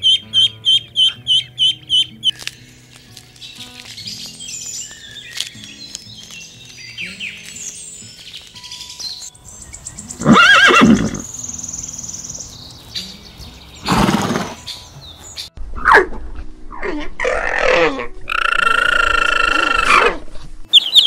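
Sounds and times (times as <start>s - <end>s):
horse neighing: 10.2s - 11.3s
faint bird chirping: 20.7s - 21.0s.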